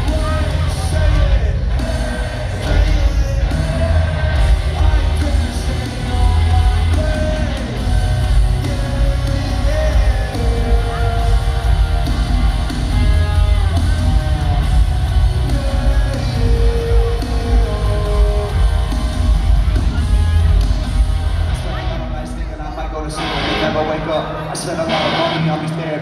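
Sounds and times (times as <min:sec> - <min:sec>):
person singing lead vocal: 0:00.0 - 0:20.1
heavy bass: 0:00.0 - 0:22.6
drums: 0:00.0 - 0:26.0
electric guitars: 0:00.0 - 0:26.0.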